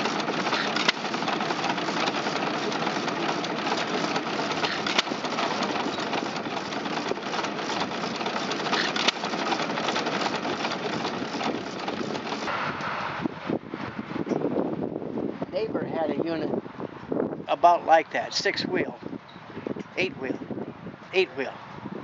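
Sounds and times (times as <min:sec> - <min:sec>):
stationary gas engines clattering: 0:00.0 - 0:12.9.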